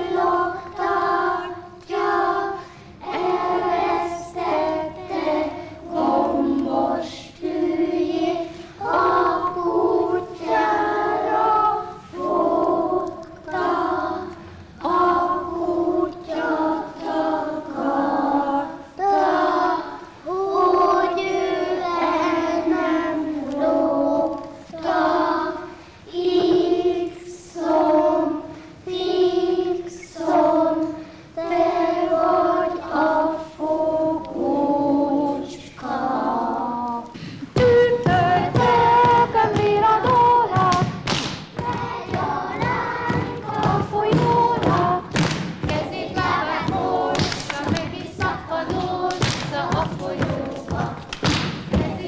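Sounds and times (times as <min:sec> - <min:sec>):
children singing unaccompanied: 0:00.0 - 0:52.0
lively song: 0:31.8 - 0:52.0
feet thumping on wooden floor: 0:37.5 - 0:52.0.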